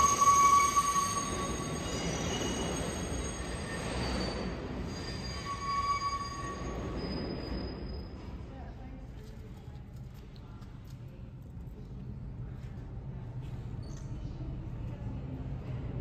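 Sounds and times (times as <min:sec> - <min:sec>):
train wheels squealing: 0:00.0 - 0:08.5, 0:13.8 - 0:14.2
train cars rumbling on rails: 0:00.0 - 0:08.6.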